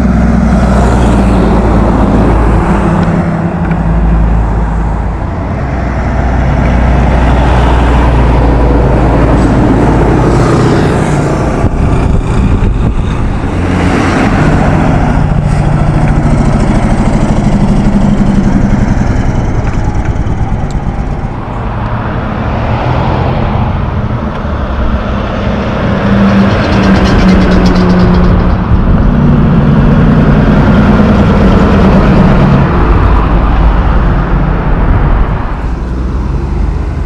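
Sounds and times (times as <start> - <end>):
diesel trucks driving past: 0.0 - 37.0
tyre and road noise: 0.0 - 37.0.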